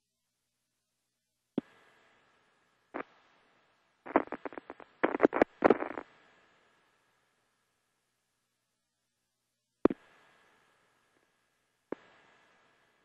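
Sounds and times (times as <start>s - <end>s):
radio crackles and pops: 3.0s - 3.2s, 4.0s - 6.1s, 9.9s - 10.1s, 11.9s - 12.2s
radio static hiss: 3.0s - 3.2s, 4.0s - 6.2s, 11.9s - 12.2s.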